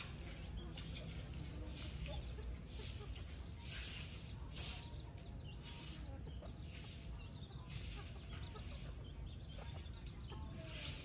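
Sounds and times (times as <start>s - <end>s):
chickens clucking: 0.0s - 11.0s
chicks peeping: 0.0s - 11.0s.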